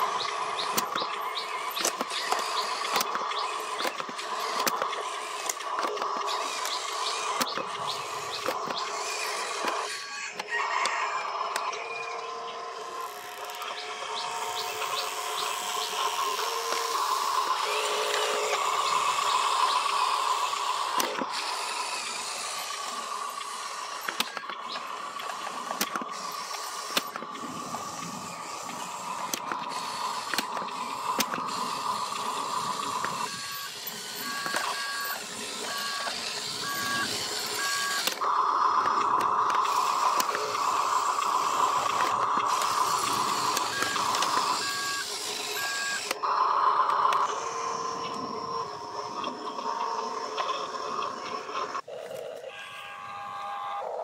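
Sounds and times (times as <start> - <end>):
electric motor whine: 0.0 - 54.0
two-tone electronic beeping: 33.1 - 38.1, 41.4 - 47.2, 52.5 - 54.0.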